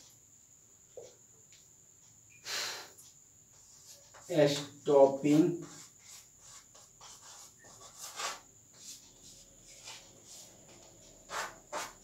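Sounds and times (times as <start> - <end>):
chalk scratching on chalkboard: 3.5 - 12.0.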